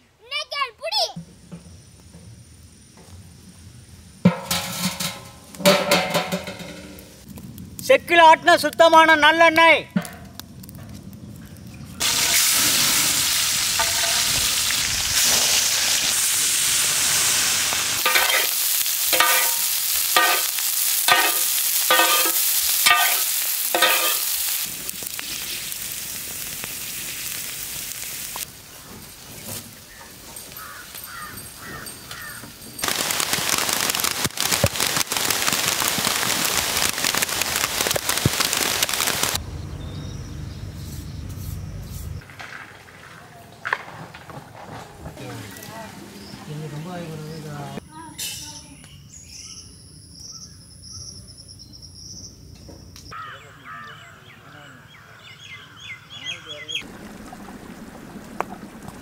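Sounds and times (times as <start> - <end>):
heavy rain falling: 12.0 - 28.5, 32.8 - 39.4, 56.7 - 59.0
meat sizzling on a grill: 12.0 - 39.4.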